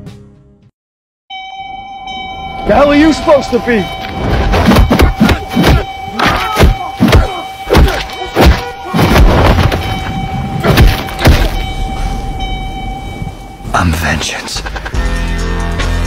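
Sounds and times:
punches and body blows: 4.4s - 9.9s, 10.6s - 11.6s.

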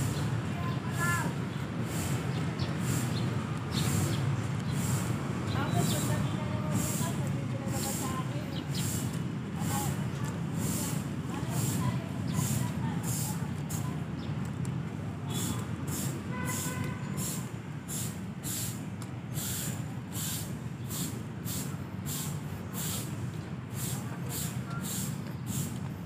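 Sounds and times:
footsteps on paving: 0.7s - 15.8s, 24.2s - 26.0s.

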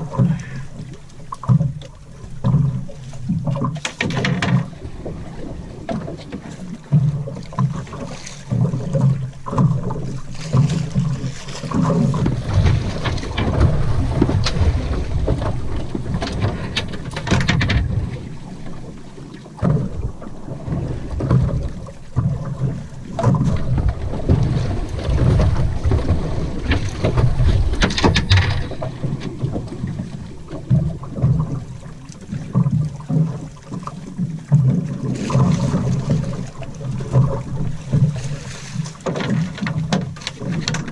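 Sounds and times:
water washing against hull: 0.0s - 40.9s
sharp knocks and rattles: 3.5s - 4.8s, 12.1s - 18.2s, 25.2s - 31.4s, 39.0s - 40.9s
wind buffeting microphone: 11.8s - 33.0s.

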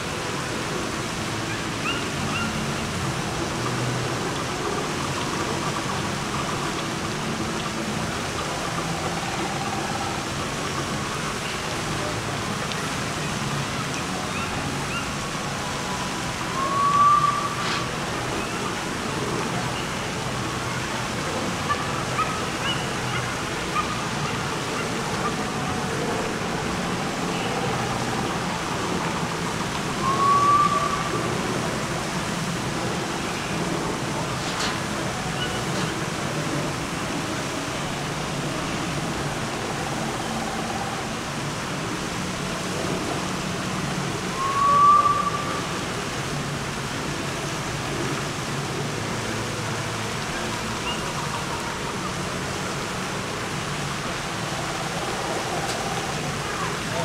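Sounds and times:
short rising whistle-like tone: 16.5s - 17.9s, 30.0s - 31.2s, 44.3s - 45.7s.

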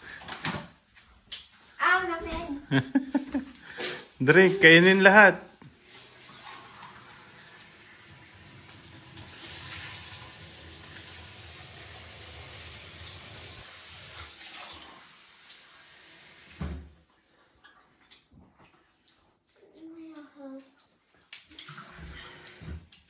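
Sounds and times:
faucet running water into sink: 5.7s - 16.8s, 21.6s - 22.8s.

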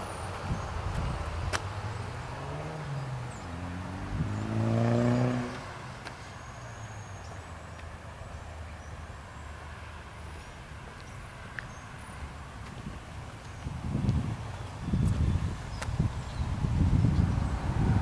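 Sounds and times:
vehicle engine passing by: 0.0s - 7.6s.

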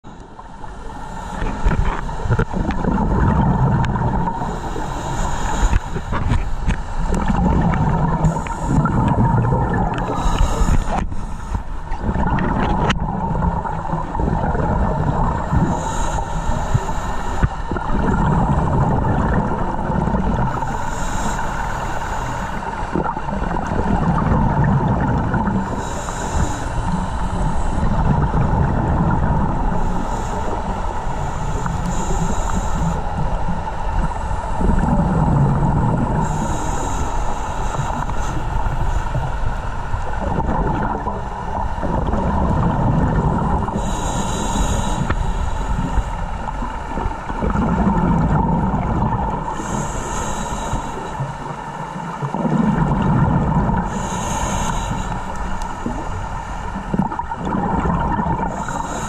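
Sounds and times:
exhaled air bubbling: 0.0s - 59.0s
regulator hissing on inhalation: 4.2s - 7.1s, 8.1s - 9.2s, 9.9s - 11.8s, 15.4s - 18.5s, 20.4s - 22.9s, 25.6s - 27.9s, 29.7s - 33.4s, 36.1s - 39.6s, 43.6s - 46.7s, 49.5s - 51.3s, 53.8s - 57.0s, 58.5s - 59.0s.

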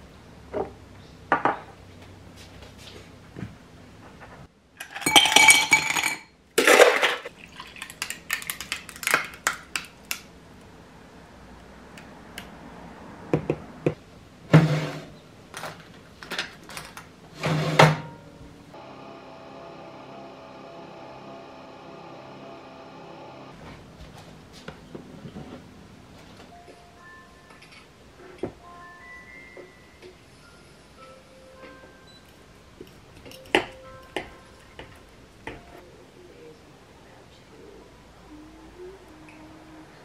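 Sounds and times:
glass with ice clinking: 4.8s - 6.3s
milk pouring over ice: 7.3s - 9.0s
steady hum: 18.0s - 26.6s.

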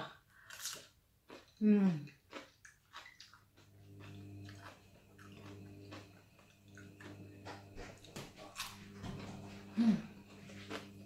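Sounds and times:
person chewing crunchy food: 0.4s - 11.0s
steady low hum: 3.4s - 11.0s.

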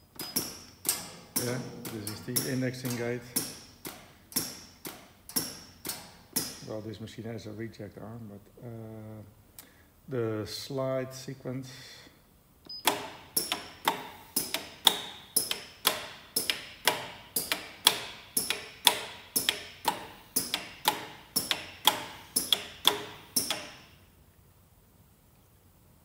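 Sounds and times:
sharp metallic clacks of slide gates: 0.1s - 6.7s, 12.8s - 24.0s.

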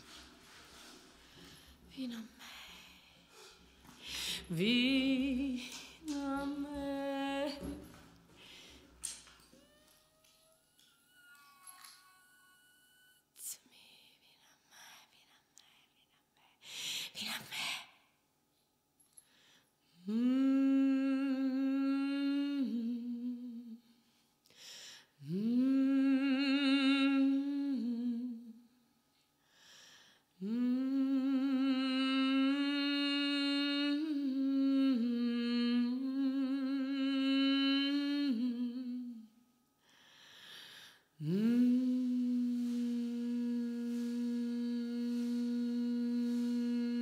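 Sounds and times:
person humming long notes: 9.4s - 13.3s, 41.2s - 47.0s.

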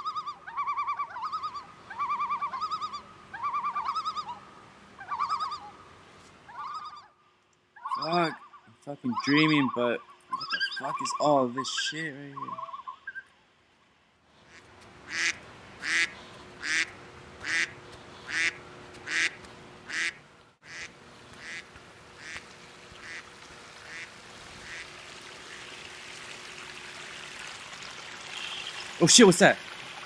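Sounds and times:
duck quacking: 14.5s - 22.4s, 23.0s - 23.2s, 23.9s - 24.9s.

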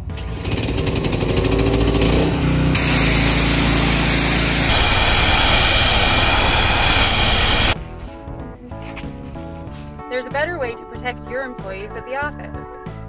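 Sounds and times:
fogging sprayer engine hum: 0.0s - 7.8s
rushing mist hiss: 2.8s - 7.8s.

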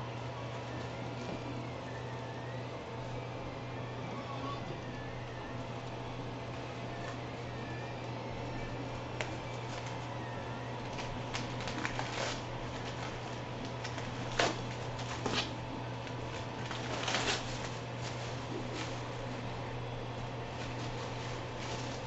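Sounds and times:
steady low hum: 0.0s - 22.0s
plastic packaging crinkling: 8.3s - 19.5s, 20.4s - 22.0s.

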